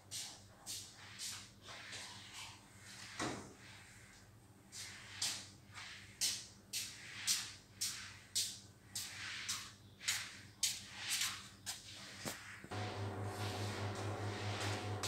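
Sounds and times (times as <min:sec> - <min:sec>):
broom sweeping hard floor: 0:00.0 - 0:15.0
dull scrape: 0:12.0 - 0:15.0.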